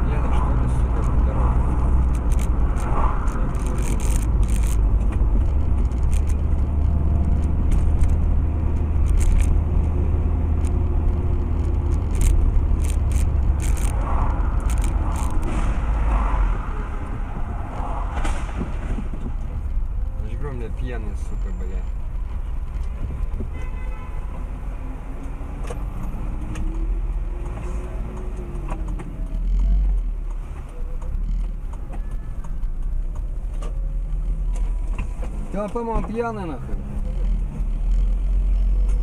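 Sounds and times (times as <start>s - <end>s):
engine and road rumble: 0.0s - 39.0s
sharp clicks: 2.0s - 15.6s.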